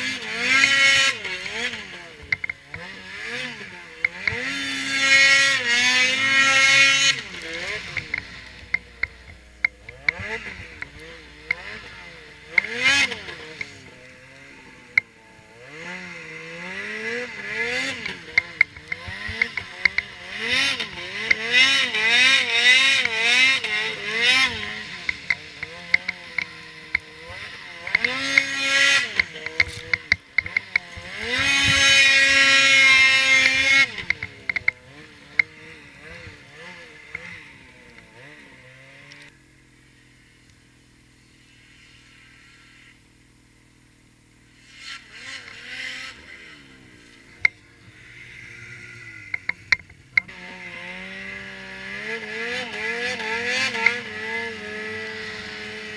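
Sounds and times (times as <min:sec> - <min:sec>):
snowmobile engine revving: 0:00.0 - 0:55.9
sharp clicks: 0:07.1 - 0:15.1, 0:33.0 - 0:36.3.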